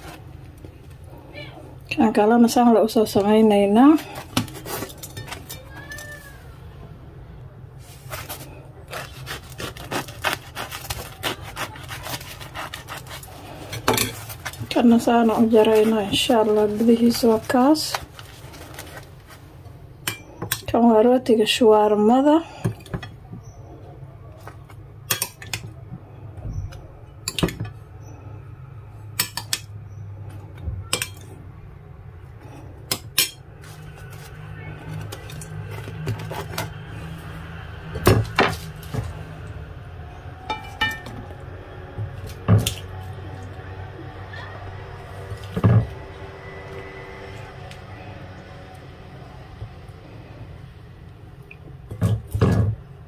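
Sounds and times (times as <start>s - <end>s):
knife sawing through bread crust: 8.1s - 17.6s.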